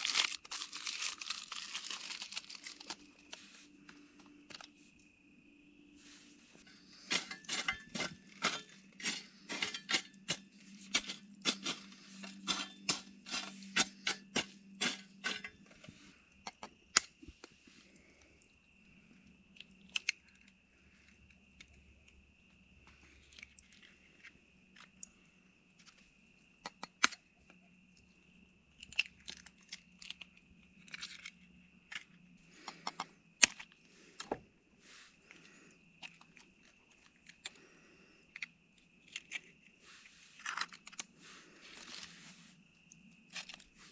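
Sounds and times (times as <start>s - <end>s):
aluminium foil crinkling: 0.0s - 3.8s, 6.7s - 15.6s, 39.0s - 42.2s.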